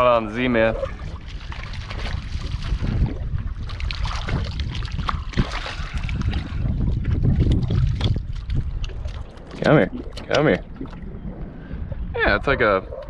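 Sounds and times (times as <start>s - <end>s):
wind buffeting microphone: 0.0s - 13.0s
fish splashing at water surface: 0.9s - 6.7s.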